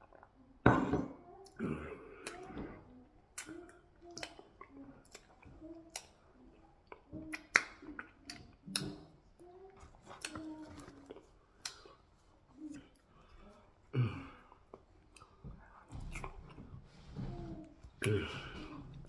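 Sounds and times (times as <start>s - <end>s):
wet lip smacks and clicks: 3.3s - 6.2s, 6.8s - 9.1s, 11.1s - 12.0s.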